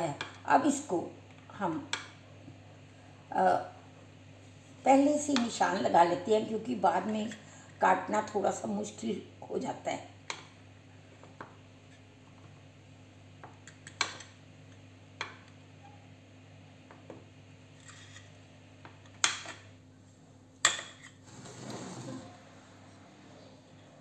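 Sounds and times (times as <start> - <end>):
scraping rustle: 21.2 - 22.5.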